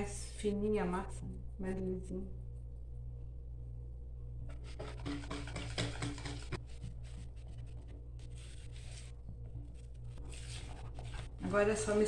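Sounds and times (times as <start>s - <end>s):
wire whisk stirring batter: 4.5s - 12.0s.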